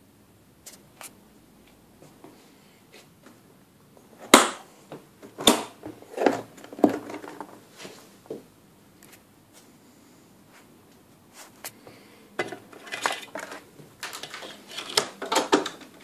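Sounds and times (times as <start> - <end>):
record player case clicks and knocks: 12.4 - 16.0.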